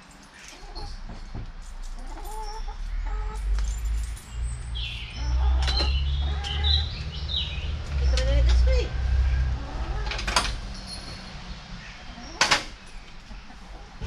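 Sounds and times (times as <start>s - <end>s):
hens clucking: 0.4s - 1.2s, 2.0s - 3.4s, 5.1s - 7.2s, 7.8s - 10.5s, 11.8s - 14.0s.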